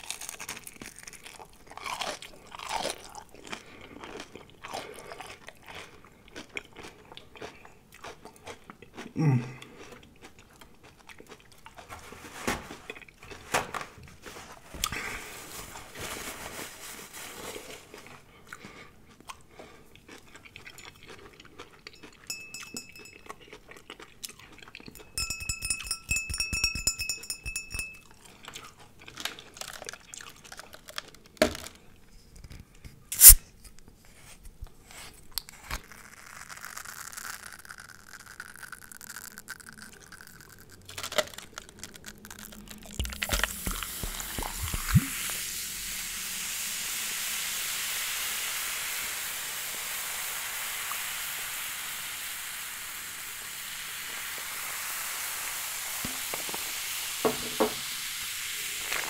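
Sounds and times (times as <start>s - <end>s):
glass bottle handled: 22.2s - 23.3s, 25.1s - 28.0s
bottle cap twisting open click: 33.1s - 33.4s
fizzy drink pouring over ice: 35.8s - 59.0s.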